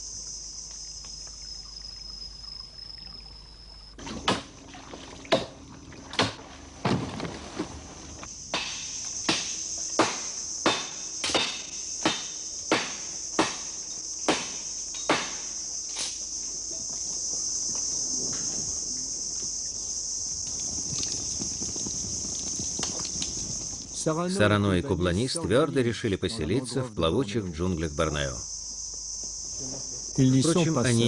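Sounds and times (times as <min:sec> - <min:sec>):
high-pitched insect drone: 0:00.0 - 0:05.2, 0:08.1 - 0:31.0
axe chopping wood: 0:08.6 - 0:13.7, 0:14.3 - 0:15.4.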